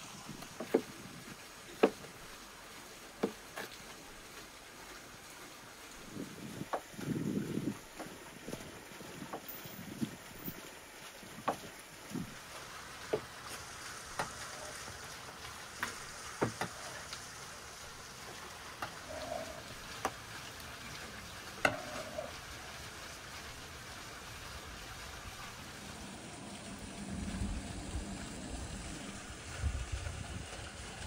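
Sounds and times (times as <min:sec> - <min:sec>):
steady hiss: 0:00.0 - 0:31.0
low rumble: 0:25.8 - 0:31.0.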